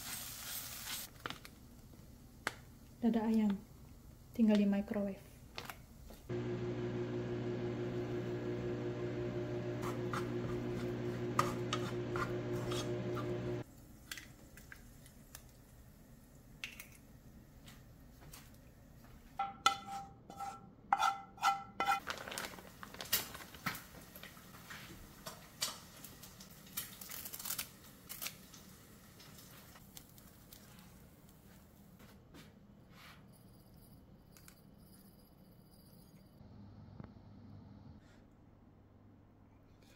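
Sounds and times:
microwave oven humming: 6.3s - 13.6s
bowl and plastic packet clatter: 22.0s - 24.4s.

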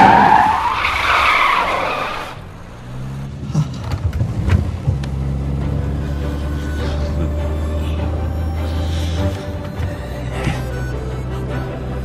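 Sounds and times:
tyres squealing: 0.0s - 4.2s, 4.9s - 12.0s
car engine running: 0.0s - 12.0s
sharp clicks and knocks: 3.6s - 5.4s.

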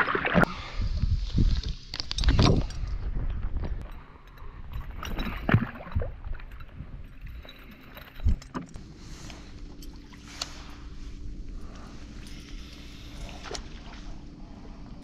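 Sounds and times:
boat motor humming: 6.1s - 15.0s.

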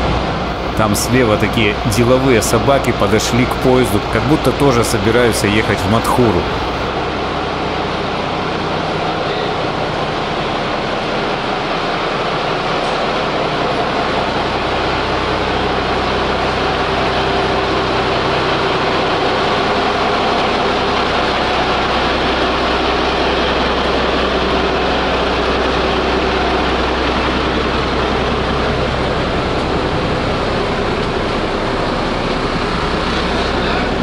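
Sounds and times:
diesel engine idling: 0.5s - 6.9s, 13.3s - 34.0s.

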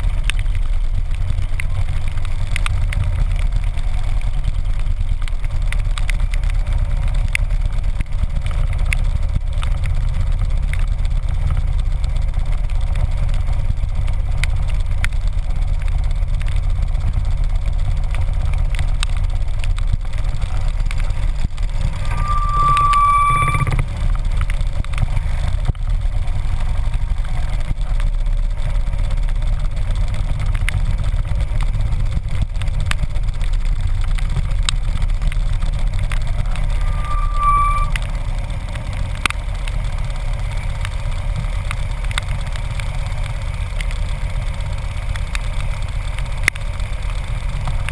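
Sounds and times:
motorcycle engine rumbling: 0.0s - 47.9s
high beep: 21.8s - 23.9s, 36.4s - 38.0s.

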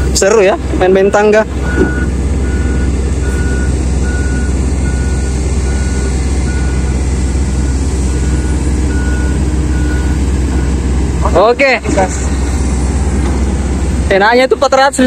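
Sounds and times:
diesel engine droning: 0.0s - 15.0s
warning beeper: 0.9s - 10.8s.

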